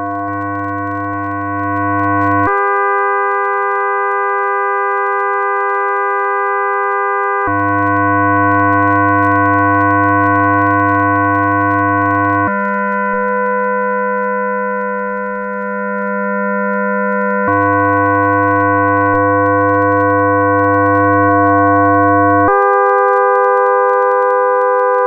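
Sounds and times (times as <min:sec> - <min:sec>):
electronic sustained tone chords: 0:00.0 - 0:02.5, 0:07.4 - 0:13.5, 0:17.4 - 0:22.6.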